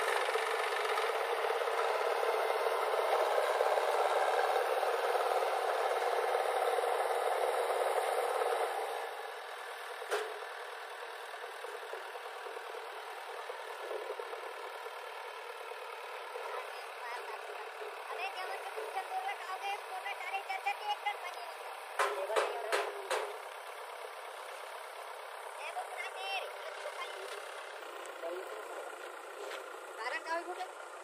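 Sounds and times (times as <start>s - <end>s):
loader rattling and scraping: 0.0s - 21.0s, 21.6s - 31.0s
diesel engines running: 0.0s - 31.0s
sharp knock: 22.0s - 23.4s.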